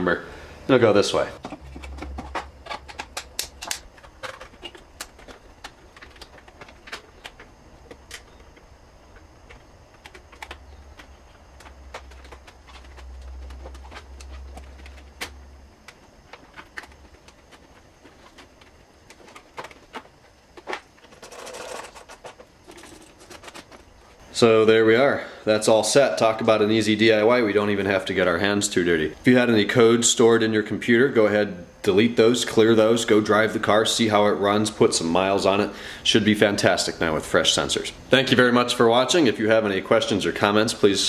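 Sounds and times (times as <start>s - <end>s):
faint low hum: 0.0s - 41.0s.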